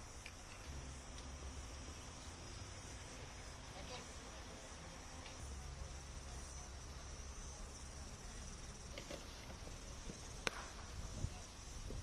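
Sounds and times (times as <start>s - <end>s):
insects buzzing: 0.0s - 12.0s.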